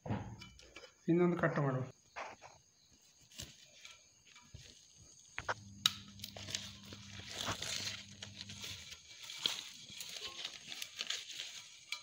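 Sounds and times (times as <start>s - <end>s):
leaves crinkling and rustling: 3.0s - 12.0s
knife cutting leaf: 5.4s - 12.0s.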